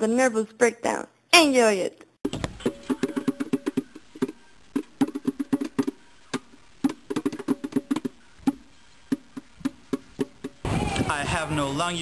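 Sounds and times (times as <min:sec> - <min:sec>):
hand drumming: 0:02.6 - 0:06.0, 0:06.8 - 0:10.6.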